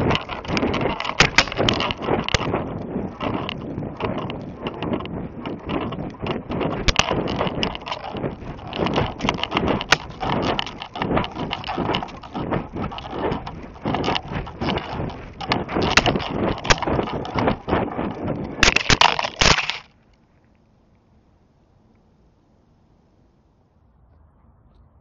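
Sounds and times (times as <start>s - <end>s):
rattling: 0.0s - 19.9s
crashes into branches: 0.0s - 20.0s
wind buffeting camera: 0.0s - 21.3s.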